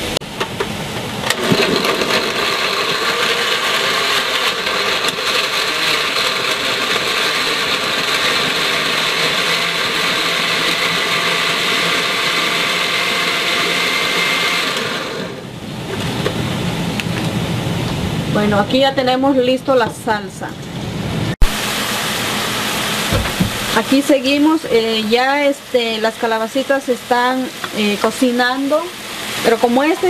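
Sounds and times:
blender running: 1.2 - 15.6, 21.4 - 30.0.

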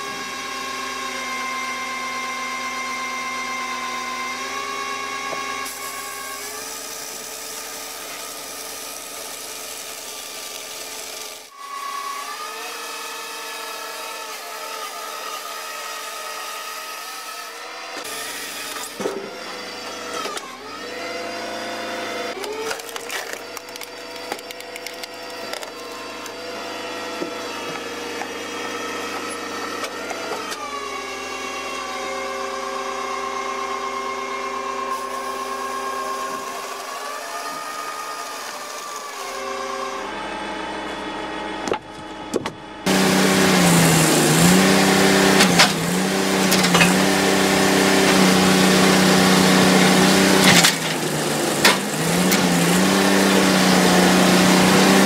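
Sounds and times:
saw cutting through logs: 0.0 - 42.0, 42.8 - 55.0
wood splitting cracks: 22.4 - 26.4
machine drone: 40.0 - 55.0.

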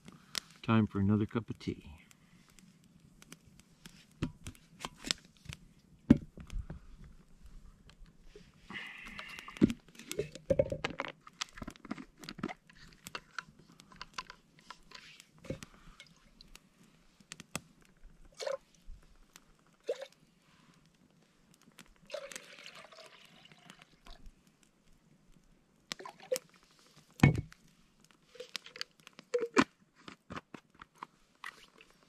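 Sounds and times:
campfire crackling and popping: 0.0 - 32.0.

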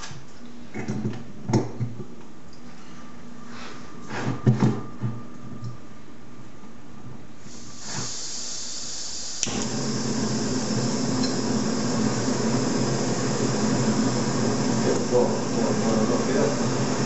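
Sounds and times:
gas burner rushing: 7.4 - 17.0
gas hissing from valve: 7.4 - 17.0.

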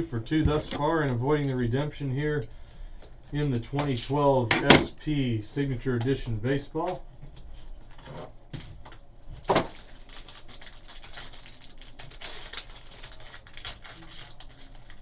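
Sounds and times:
foil wrapper tearing and crinkling: 9.4 - 15.0.

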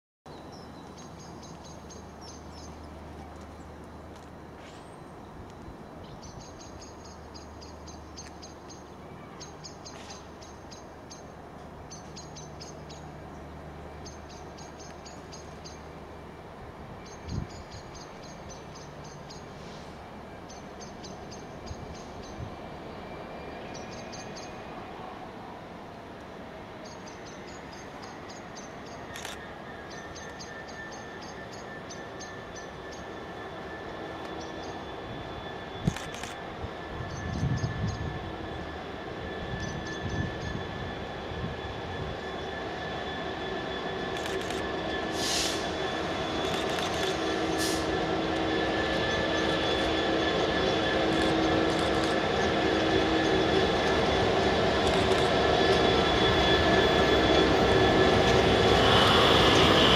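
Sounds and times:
songbird singing: 0.3 - 3.8, 4.9 - 16.0.

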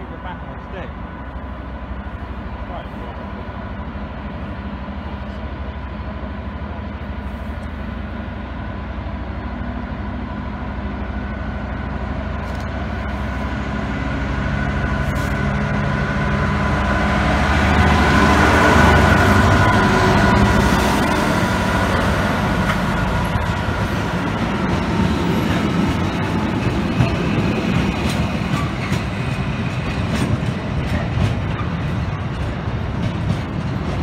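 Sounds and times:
diesel locomotive engine: 0.0 - 34.0.

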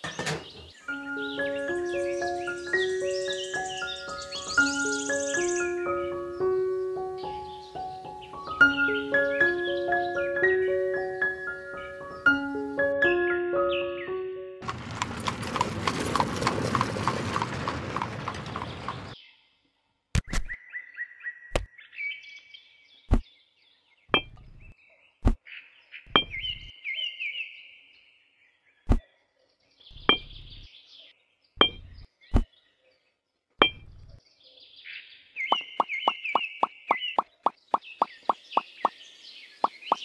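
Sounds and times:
dense rustling with rapid ticks: 14.6 - 19.2.

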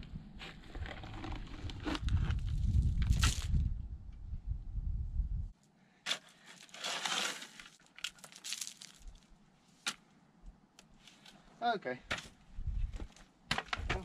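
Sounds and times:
shovel scraping gravel: 6.1 - 9.1.

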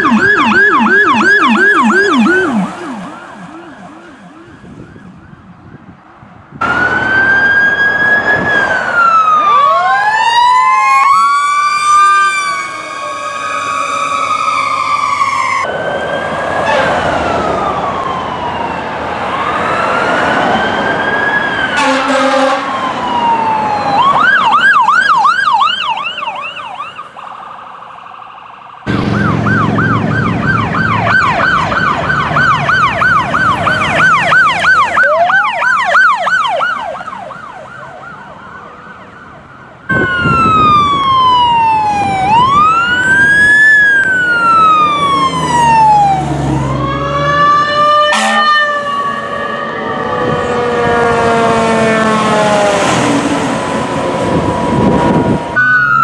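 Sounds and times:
emergency vehicle sirens wailing: 0.0 - 56.0
vehicle horn blast: 21.8 - 22.7, 48.1 - 48.6.

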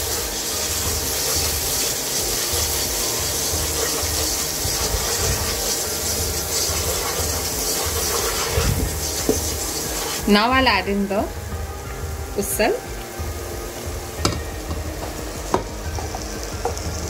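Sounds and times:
paste sizzling in oil: 0.0 - 17.0
wooden spatula scraping pot: 0.1 - 10.5.

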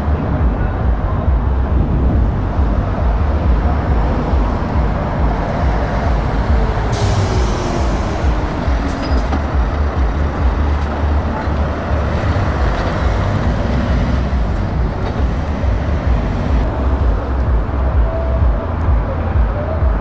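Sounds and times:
truck diesel engine rumbling: 0.0 - 20.0.

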